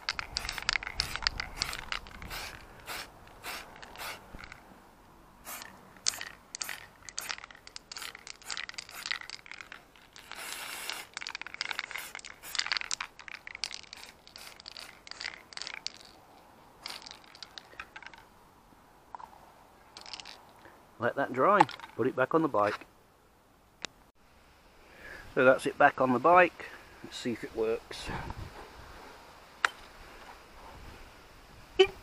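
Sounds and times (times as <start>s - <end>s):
aerosol spray can hissing: 0.4s - 4.4s, 5.4s - 9.2s, 10.2s - 11.2s, 11.8s - 13.0s, 13.8s - 15.2s.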